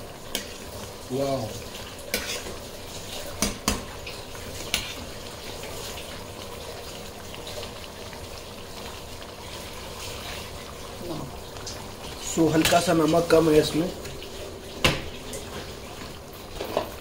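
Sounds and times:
gravy simmering and bubbling: 0.0s - 17.0s.

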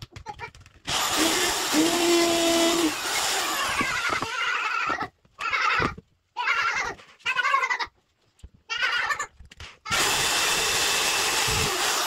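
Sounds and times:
electric drill boring through wood: 0.9s - 4.4s, 9.9s - 12.0s.

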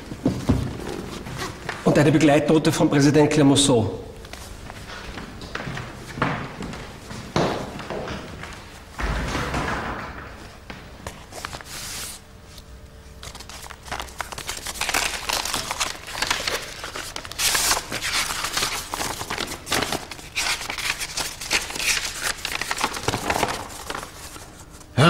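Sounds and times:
paper rustling and crinkling: 11.0s - 25.0s.

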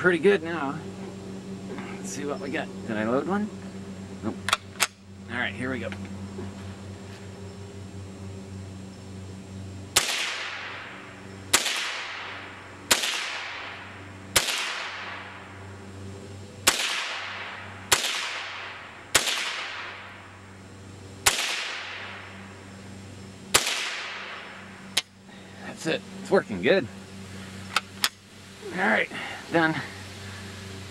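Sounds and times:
rifle shots echoing: 10.0s - 15.3s, 16.6s - 20.2s, 21.2s - 22.2s, 23.5s - 24.6s.

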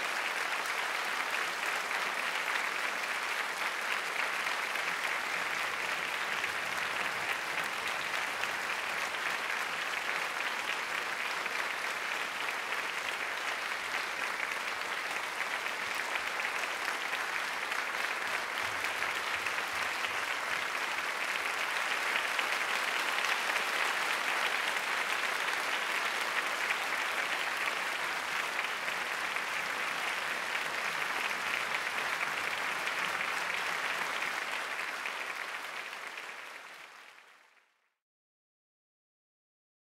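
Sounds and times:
audience applauding: 0.0s - 37.8s.

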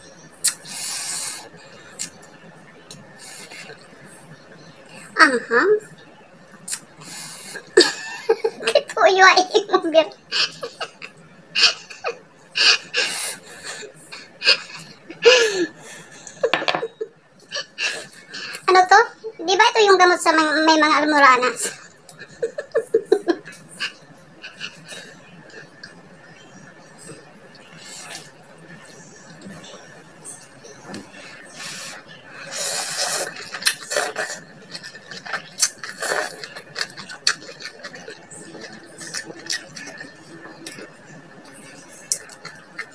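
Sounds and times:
woman laughing: 7.8s - 8.9s, 10.3s - 12.8s, 22.2s - 24.0s
person slurping: 31.6s - 40.8s
crunching and chewing: 32.5s - 41.0s.

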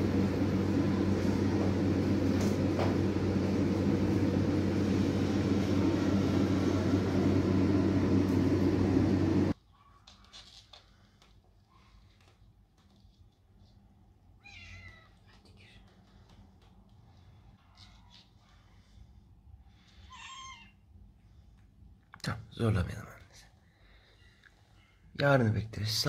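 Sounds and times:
low mechanical hum: 0.0s - 26.0s.

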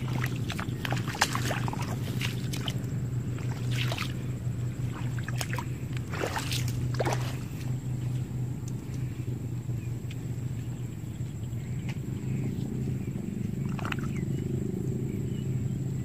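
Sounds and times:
bare feet splashing in mud: 0.0s - 8.2s
steady low hum: 0.0s - 16.0s.

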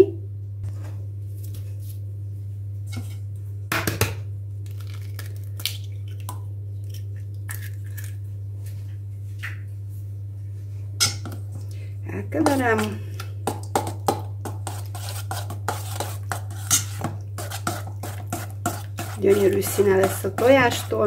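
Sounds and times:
egg tapped on metal bowl: 13.4s - 14.6s.

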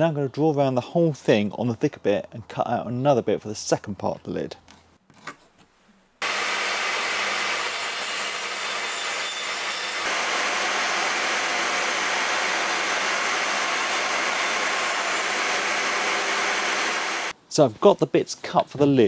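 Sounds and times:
bandsaw cutting wood: 6.2s - 17.3s.

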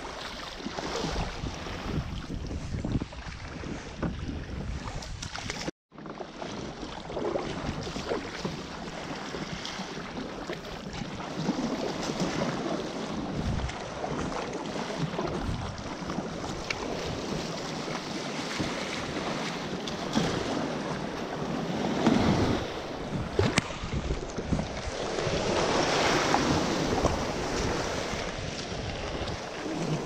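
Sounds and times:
water splashing against kayak: 0.0s - 30.0s
wind buffeting microphone: 0.8s - 5.7s, 12.1s - 30.0s.

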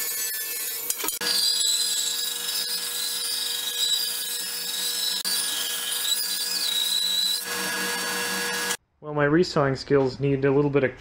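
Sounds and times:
bandsaw cutting wood: 0.0s - 8.8s.

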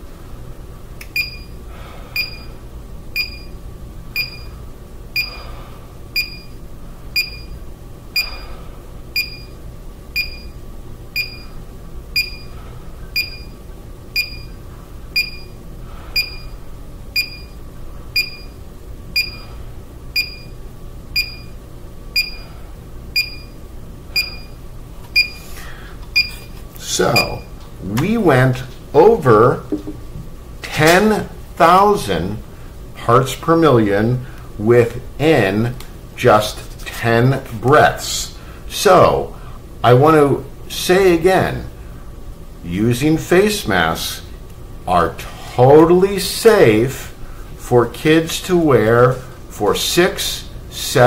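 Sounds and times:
detector short high beeps: 1.2s - 1.6s, 2.2s - 2.5s, 3.2s - 3.5s, 4.2s - 4.5s, 5.2s - 5.4s, 6.2s - 6.6s, 7.2s - 7.5s, 9.2s - 9.5s, 10.2s - 10.6s, 11.2s - 11.5s, 12.2s - 12.5s, 13.2s - 13.6s, 14.2s - 14.5s, 15.2s - 15.5s, 16.2s - 16.6s, 18.2s - 18.6s, 19.2s - 19.5s, 21.2s - 21.5s, 23.2s - 23.6s, 24.2s - 24.6s, 27.1s - 27.5s
man breathing through face mask: 1.7s - 2.3s, 5.3s - 5.9s, 25.4s - 26.0s.

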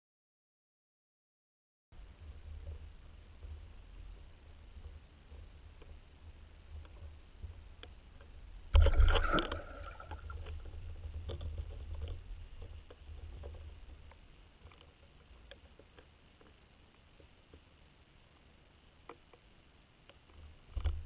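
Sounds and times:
faint clicks: 2.6s - 17.7s
low rumble of churned water: 8.6s - 14.2s
loud splash underwater: 8.8s - 10.4s.

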